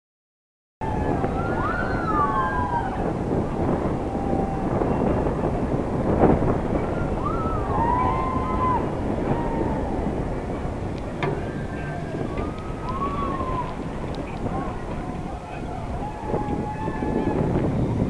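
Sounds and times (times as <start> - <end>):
wind buffeting microphone: 0.8 - 18.0
clunk: 11.0 - 12.6
high cries: 11.4 - 17.4.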